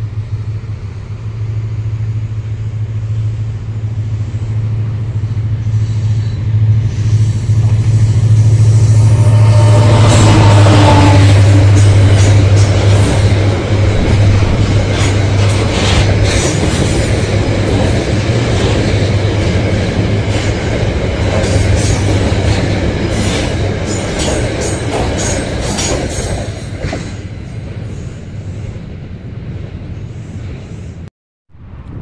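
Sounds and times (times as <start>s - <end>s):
train wheels rumbling on rail: 0.0s - 32.0s
wheels clacking on rail joints: 9.8s - 27.5s.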